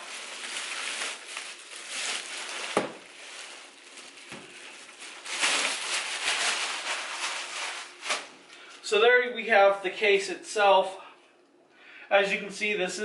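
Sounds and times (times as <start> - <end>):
plastic bag crinkling: 0.0 - 8.7.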